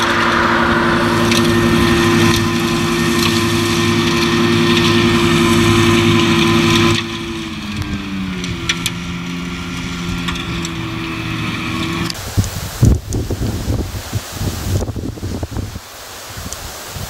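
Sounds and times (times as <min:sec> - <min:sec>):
tractor engine: 0:00.0 - 0:12.5
flail mulcher running under load: 0:00.0 - 0:12.6.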